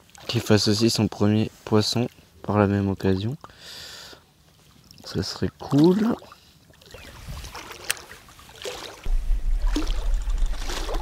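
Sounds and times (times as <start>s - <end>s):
water washing around camera: 4.6s - 11.0s.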